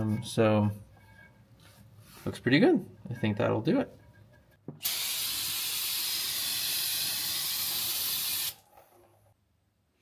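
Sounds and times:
aerosol spray can hissing: 4.8 - 8.6.

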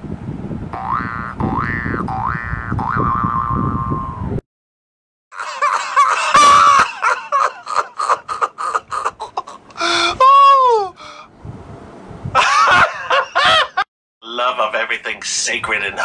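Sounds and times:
high-pitched laughter: 5.4 - 10.8, 12.4 - 13.8.

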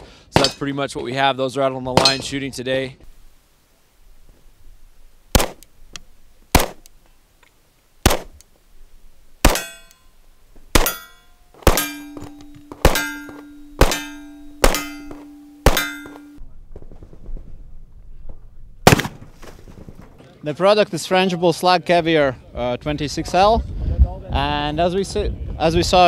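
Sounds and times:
steel targets clanging: 0.3 - 0.8, 1.9 - 2.5, 9.4 - 16.4
pistol shots: 5.3 - 5.7, 6.5 - 6.9, 8.0 - 8.4, 9.4 - 9.9, 10.7 - 16.4, 18.8 - 19.3
steady ringing tone: 9.5 - 10.2, 10.8 - 16.4.

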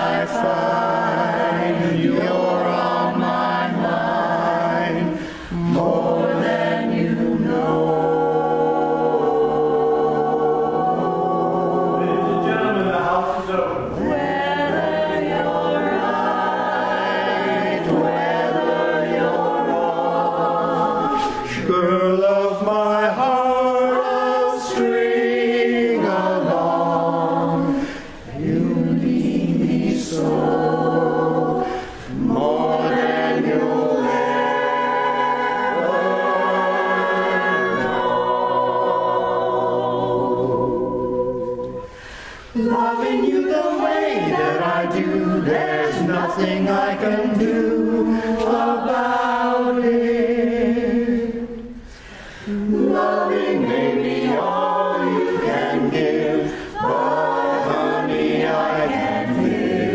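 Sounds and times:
chorus singing a cappella: 0.0 - 59.9.

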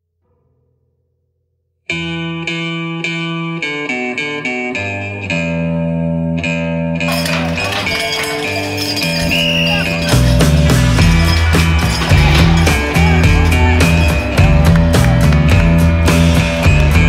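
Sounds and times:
plucked guitar music: 1.9 - 17.0.

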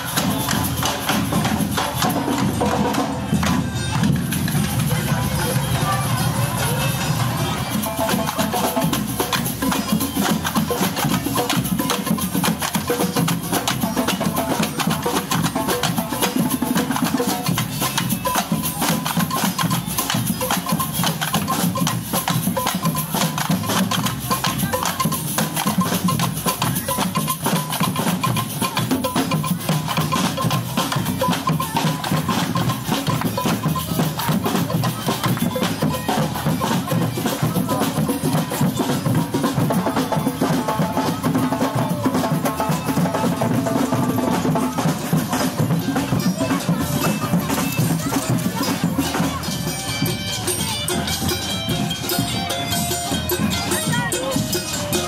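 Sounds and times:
drums playing fast rhythm: 0.0 - 55.0.

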